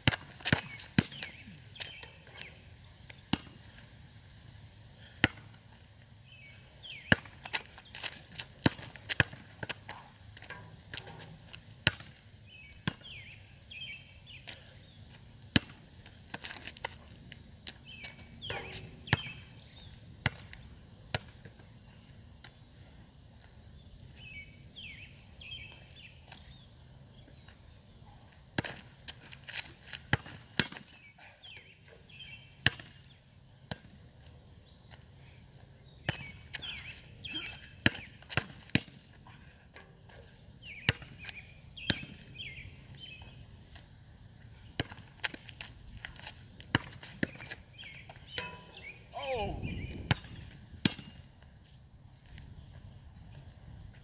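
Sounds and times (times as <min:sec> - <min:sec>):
basketball bouncing on asphalt: 0:00.0 - 0:02.6, 0:03.2 - 0:03.8, 0:05.1 - 0:21.7, 0:28.4 - 0:34.3, 0:36.0 - 0:43.9, 0:44.7 - 0:49.1, 0:49.7 - 0:51.5.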